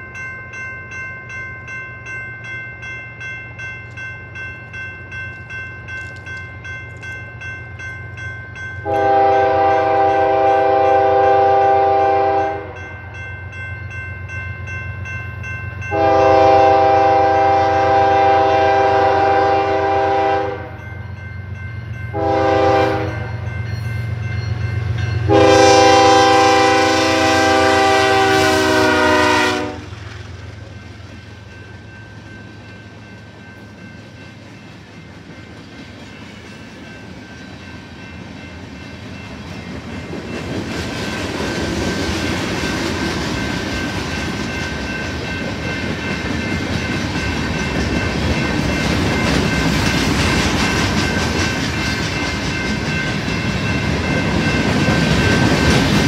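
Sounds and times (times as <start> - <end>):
train air horn blasts: 8.8 - 12.8, 15.9 - 20.8, 22.1 - 23.4, 25.3 - 30.0
diesel locomotive engine rumble: 15.0 - 56.0.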